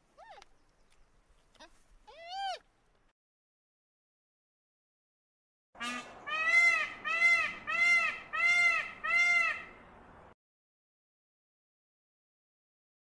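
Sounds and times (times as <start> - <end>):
peacock calling: 5.8 - 9.8.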